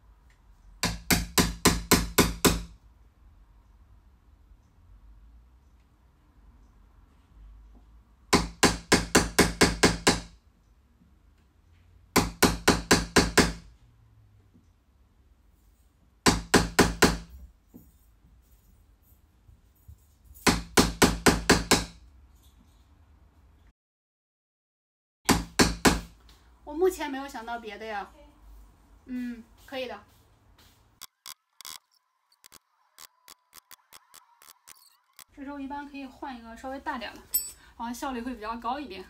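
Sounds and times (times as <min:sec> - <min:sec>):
hammer tapping chisel into wood: 0:00.8 - 0:02.7, 0:12.2 - 0:13.6, 0:16.3 - 0:17.3.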